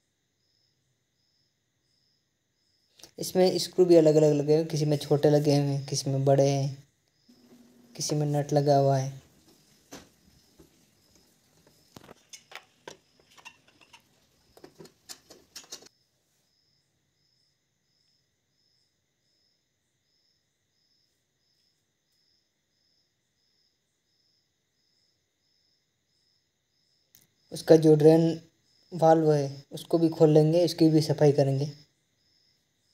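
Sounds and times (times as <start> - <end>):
screwdriver clicking and scraping metal: 11.9 - 15.9.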